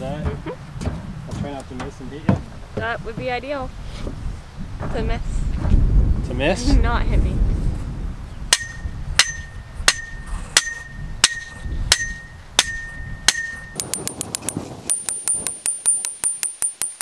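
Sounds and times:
sledgehammer striking steel post: 8.5s - 17.0s.

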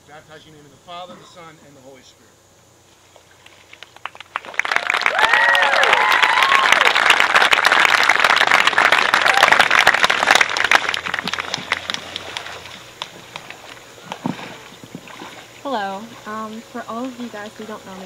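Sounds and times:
crowd clapping and cheering: 3.8s - 13.6s
people whooping: 4.4s - 11.8s.

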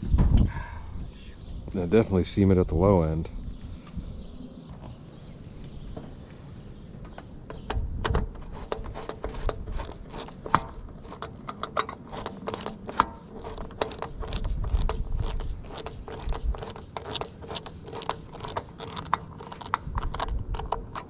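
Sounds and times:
wrench clicking and scraping metal: 7.1s - 21.0s.

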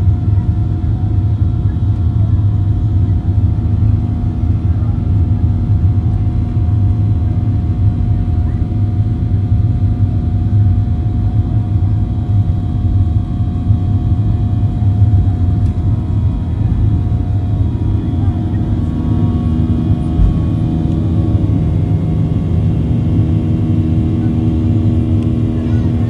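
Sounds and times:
faint jet engine whine: 0.0s - 26.0s
aircraft wheels rumbling: 13.8s - 26.0s.

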